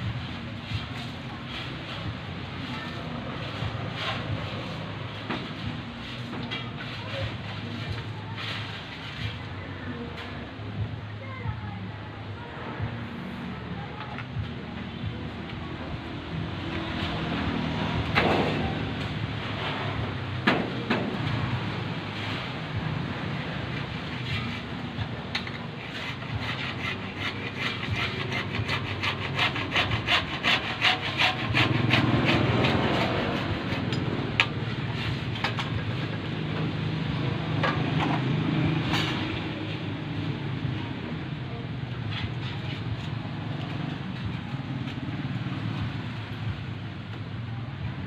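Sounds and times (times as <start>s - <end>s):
hand saw cutting plastic pipe: 25.3s - 35.7s.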